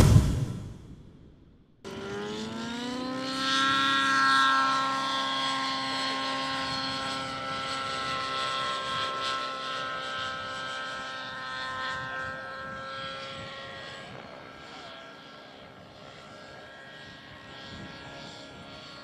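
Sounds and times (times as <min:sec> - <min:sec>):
loud title sting hit: 0:00.0 - 0:01.3
model helicopter engine whine: 0:01.9 - 0:19.0.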